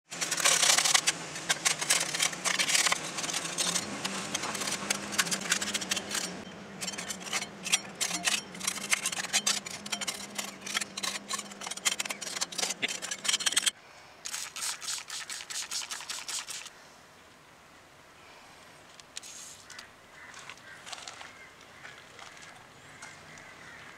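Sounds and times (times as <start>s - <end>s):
metal scraper scraping metal: 0.1s - 16.7s.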